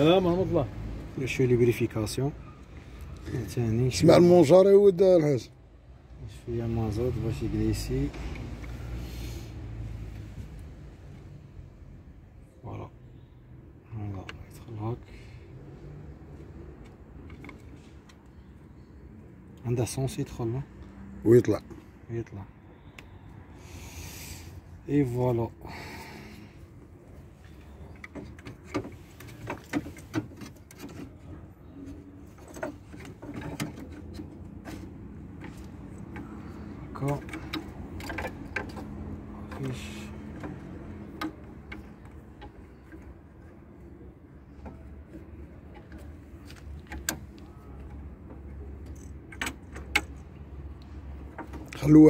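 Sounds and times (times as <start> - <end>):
fuel-line fittings clicking: 31.8 - 43.2.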